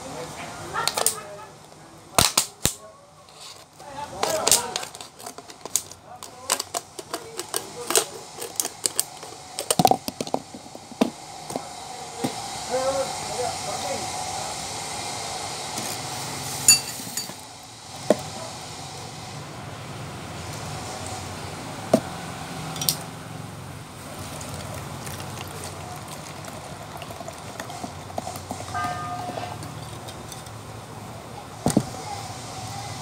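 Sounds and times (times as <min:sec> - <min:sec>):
cola pouring and fizzing: 0:06.7 - 0:12.6, 0:23.9 - 0:30.3.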